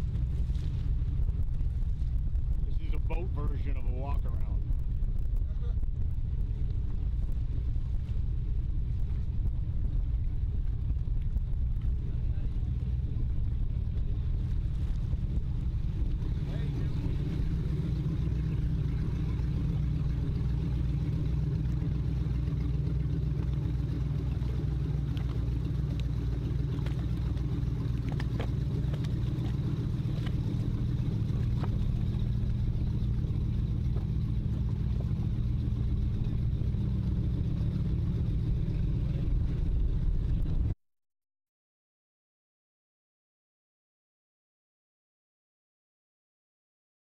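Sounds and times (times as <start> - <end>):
powerboat engines idling: 0.0 - 40.8.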